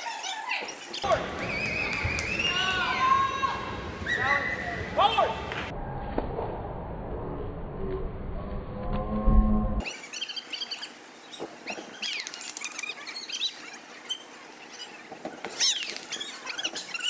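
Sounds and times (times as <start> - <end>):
feet squeaking on a mat: 10.2 - 17.0.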